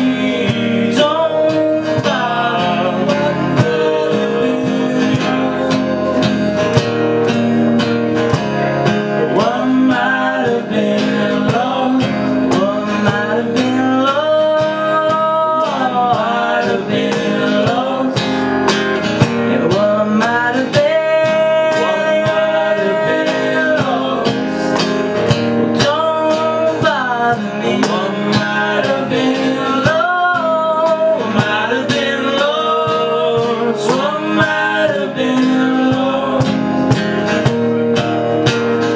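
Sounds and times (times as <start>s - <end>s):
men singing together: 0.0s - 6.7s, 9.0s - 37.5s
acoustic guitar strummed: 0.0s - 38.9s.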